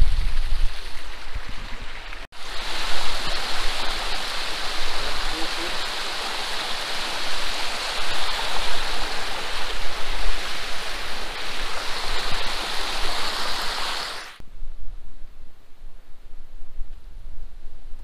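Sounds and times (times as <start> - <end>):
stream splashing over rocks: 0.4 - 14.4.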